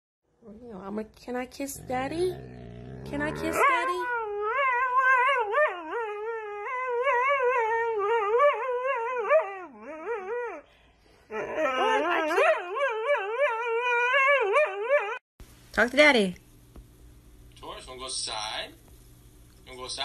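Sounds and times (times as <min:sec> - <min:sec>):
dog howling: 0:01.8 - 0:10.6, 0:11.3 - 0:15.2.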